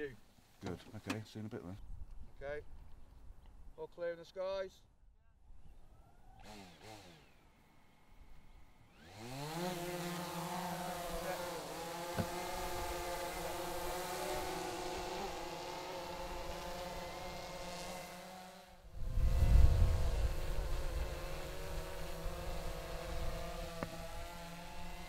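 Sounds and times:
drone propellers buzzing: 8.8 - 25.0.

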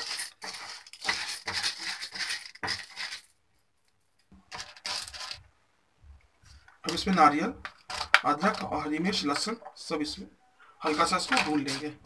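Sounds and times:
lentils rattling in a metal pan: 0.0 - 3.4, 4.5 - 5.4, 10.8 - 12.0.

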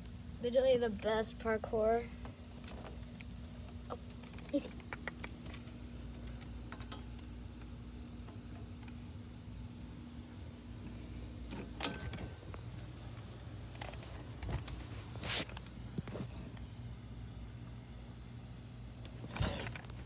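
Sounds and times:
crickets chirping: 0.0 - 20.0.

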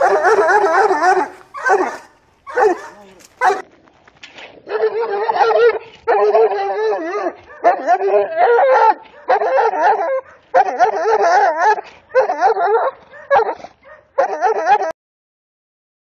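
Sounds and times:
dog barking aggressively: 0.0 - 3.6, 12.1 - 14.3.

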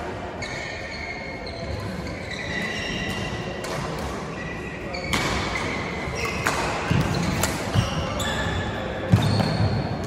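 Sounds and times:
shoes squeaking on court: 0.4 - 9.8
rackets hitting shuttlecock: 3.1 - 4.2, 5.1 - 8.0.

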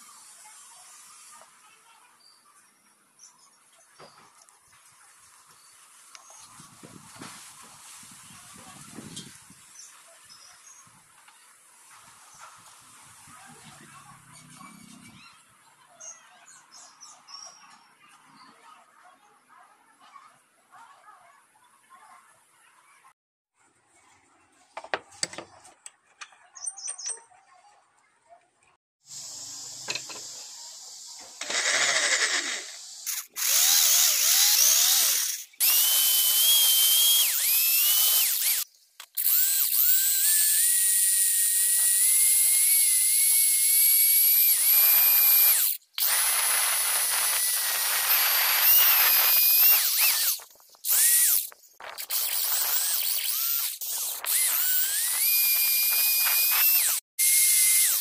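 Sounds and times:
power drill whining through brass: 31.4 - 58.0.

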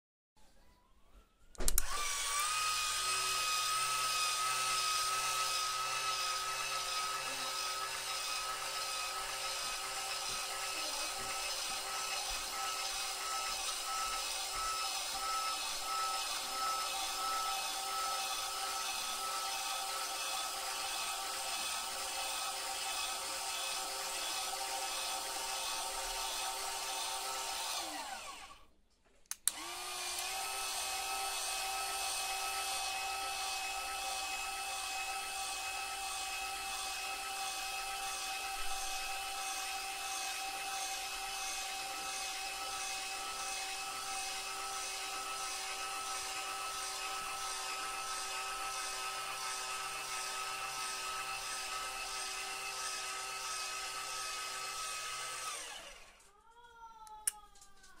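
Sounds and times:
click: 1.5 - 2.0, 29.0 - 29.6, 57.0 - 58.0
small electric motor whining: 1.7 - 28.7, 29.5 - 56.3.

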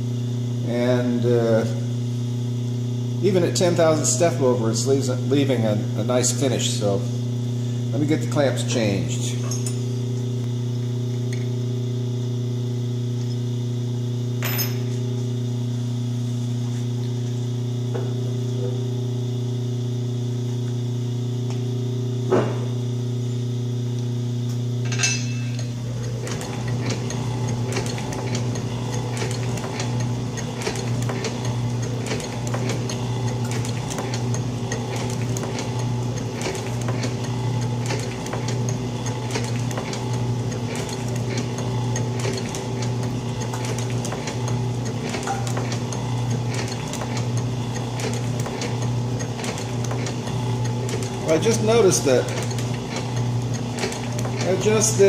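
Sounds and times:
electric hum: 0.0 - 55.0
shaper rhythmic mechanical clatter: 25.9 - 55.0.

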